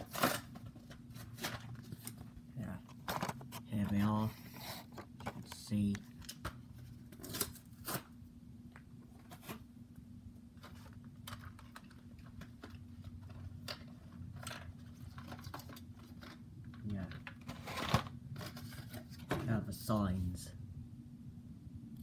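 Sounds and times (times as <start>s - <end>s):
faint low hum: 0.0s - 22.0s
plastic packaging clicking and crackling: 10.6s - 19.4s.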